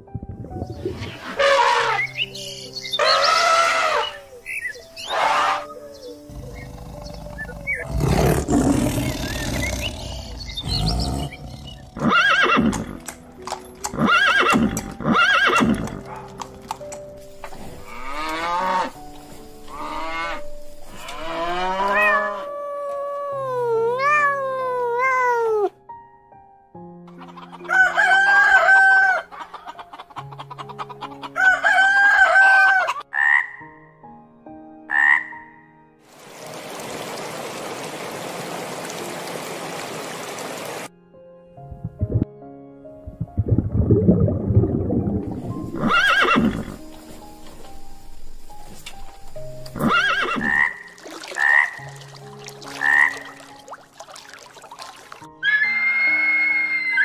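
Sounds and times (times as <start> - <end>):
background music: 0.0 - 36.6, 40.7 - 57.0
pitched animal calls: 5.0 - 12.8
cow lowing: 6.1 - 12.8
tiger roaring: 6.3 - 12.0.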